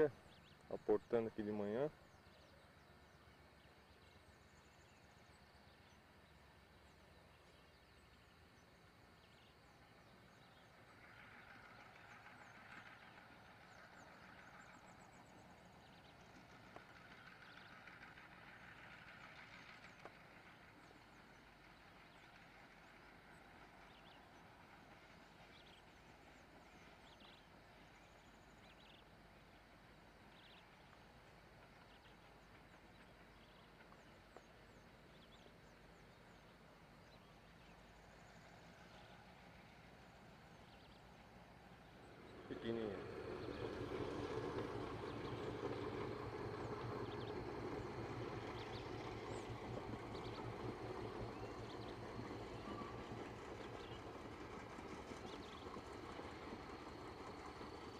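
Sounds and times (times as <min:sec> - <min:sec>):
distant train engine hum: 0:00.0 - 0:57.9.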